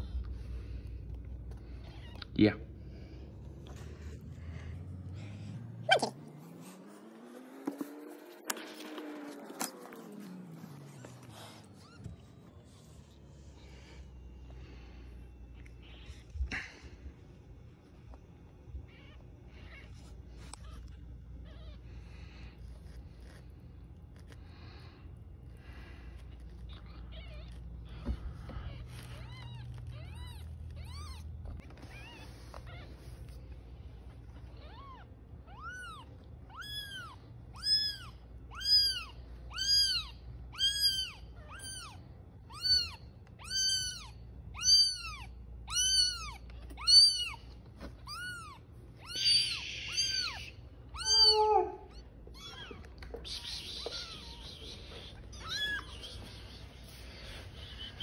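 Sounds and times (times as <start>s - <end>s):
kitten mewing: 5.8s - 6.8s, 26.2s - 33.4s, 34.3s - 58.0s.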